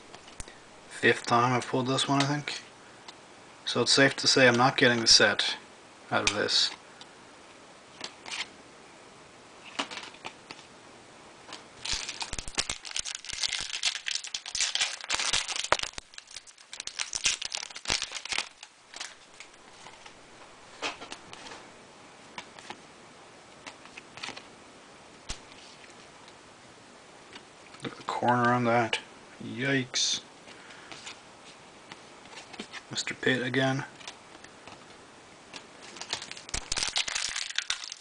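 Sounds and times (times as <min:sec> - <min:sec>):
cards being handled: 0:09.7 - 0:10.7, 0:11.5 - 0:20.2, 0:23.6 - 0:24.5, 0:30.5 - 0:32.9, 0:33.9 - 0:38.0
foil wrapper crinkling: 0:11.8 - 0:20.2, 0:35.8 - 0:38.0.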